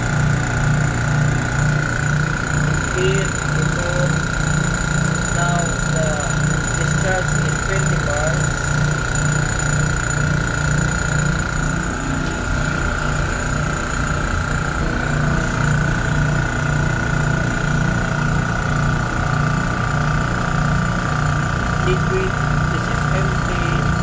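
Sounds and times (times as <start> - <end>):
refrigerant recovery machine humming: 0.0 - 24.0.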